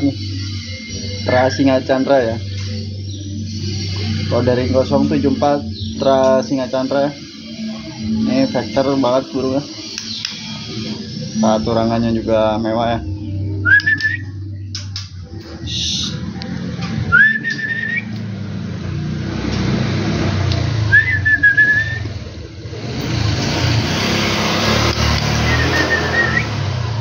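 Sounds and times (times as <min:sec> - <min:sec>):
traffic rumble and hiss: 0:15.6 - 0:27.0
short rising whistles: 0:17.0 - 0:18.3, 0:20.7 - 0:22.2, 0:25.2 - 0:27.0.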